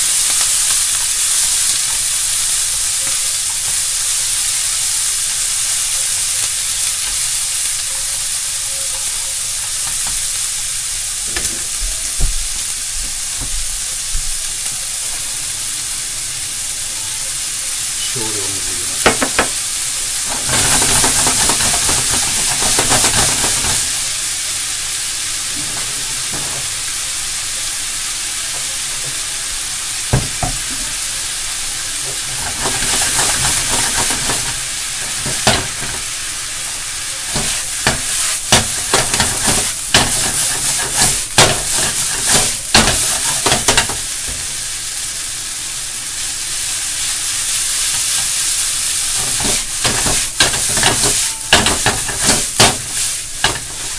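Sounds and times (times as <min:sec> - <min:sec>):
noodles sizzling in a frying pan: 0:00.0 - 0:53.9.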